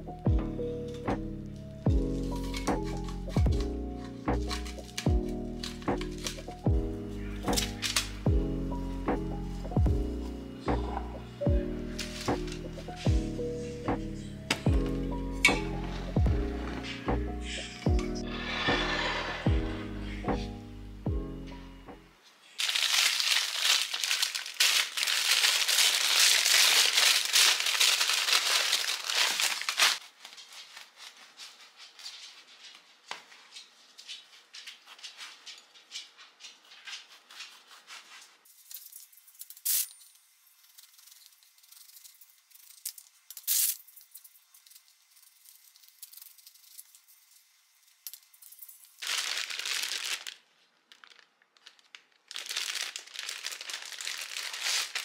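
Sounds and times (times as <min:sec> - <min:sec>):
plastic bag crinkling: 0:01.6 - 0:06.7, 0:22.4 - 0:32.4, 0:40.6 - 0:55.0
paper bag crinkling: 0:01.6 - 0:08.3, 0:22.3 - 0:32.7, 0:48.3 - 0:55.0.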